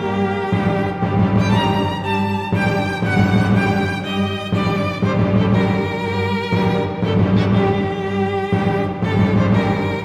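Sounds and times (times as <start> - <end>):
background music of held notes: 0.0 - 10.0.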